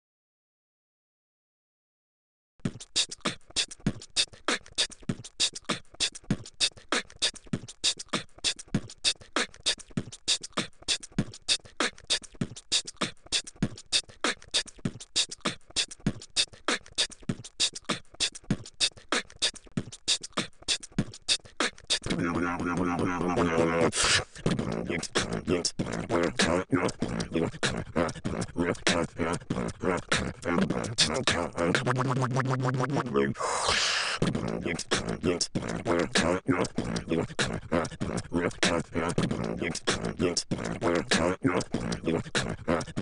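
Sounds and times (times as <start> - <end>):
person beatboxing: 2.6 - 43.0.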